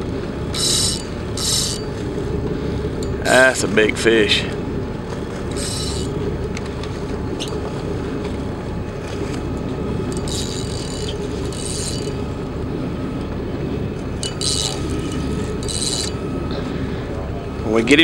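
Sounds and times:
boat engine idling: 0.0 - 18.0
spinning reel whirring: 0.4 - 2.0, 5.5 - 6.3, 7.4 - 7.7, 10.0 - 12.5, 14.1 - 16.4.

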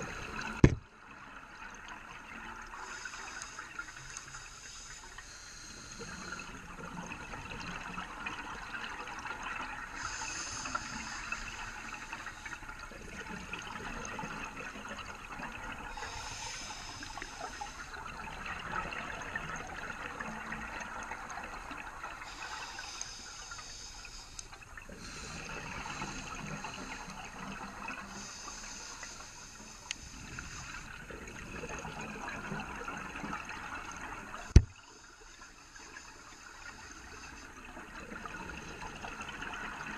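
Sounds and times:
exhaled air bubbling: 0.0 - 39.9
regulator breathing hiss: 2.8 - 6.4, 10.0 - 12.6, 15.9 - 18.0, 22.2 - 27.1, 28.1 - 31.0.

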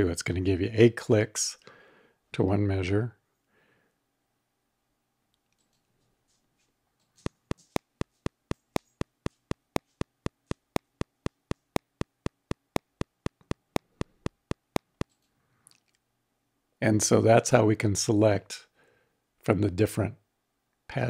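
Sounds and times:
metronome clicks: 7.2 - 15.2.

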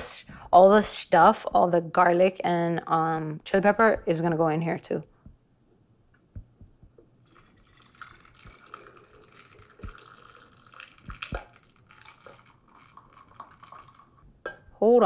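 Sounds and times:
water trickling into glass jar: 7.2 - 14.3.

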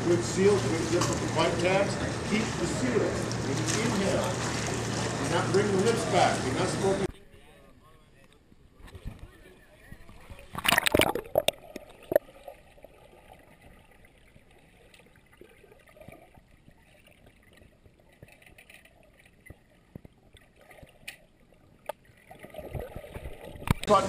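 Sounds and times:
splash into pool water: 3.2 - 6.4
small underwater clicks: 13.6 - 23.9.

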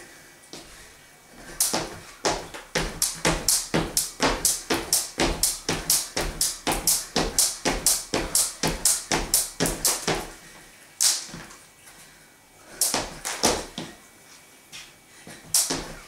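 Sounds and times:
skipping rope slapping floor: 1.4 - 10.4, 11.0 - 11.5, 12.8 - 14.0, 15.4 - 16.0.

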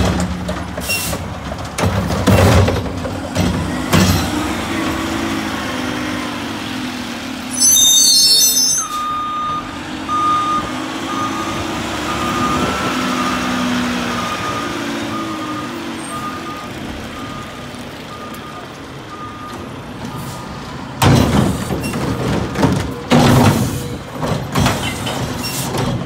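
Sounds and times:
backup alarm beeping: 7.5 - 13.4
truck diesel engine running: 9.0 - 21.0.

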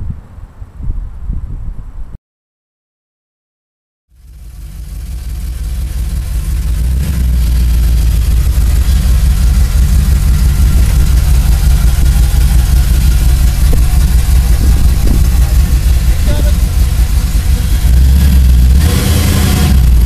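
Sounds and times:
truck engine rumbling: 4.1 - 20.0.

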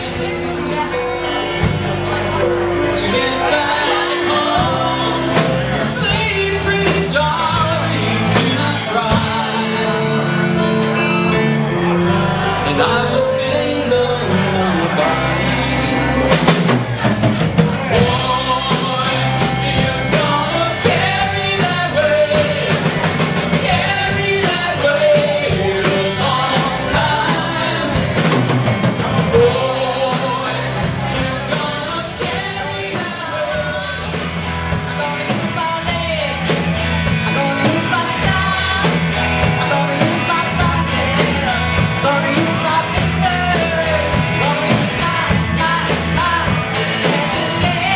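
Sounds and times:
electric guitars: 0.0 - 47.9
keyboard: 0.0 - 47.9
drum kit with cymbal strokes: 3.9 - 11.4, 15.4 - 47.9.

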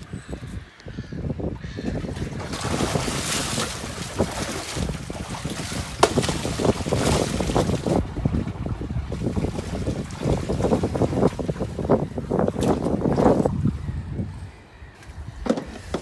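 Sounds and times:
wind buffeting microphone: 0.0 - 16.0
water rushing along a boat: 1.5 - 13.6.

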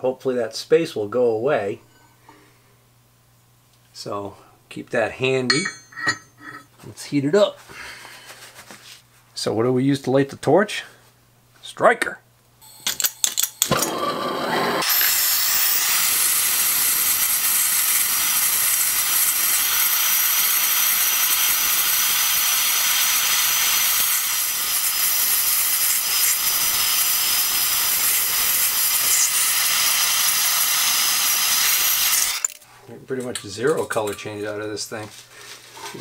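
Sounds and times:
hand torch hissing: 13.7 - 32.6.

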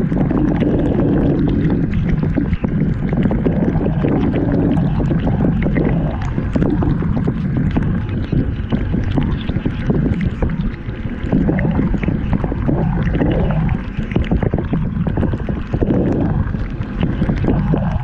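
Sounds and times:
dishwasher low rumble: 0.0 - 18.0
water spraying and sloshing: 0.0 - 18.0.

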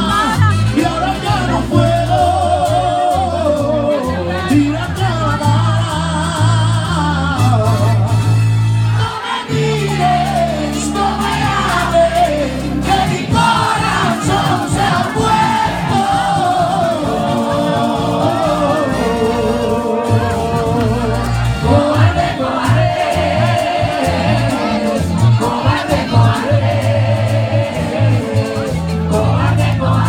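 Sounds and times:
heavy bass: 0.0 - 30.0
live band with lead singer: 0.0 - 30.0
percussion steady beat: 0.0 - 30.0.

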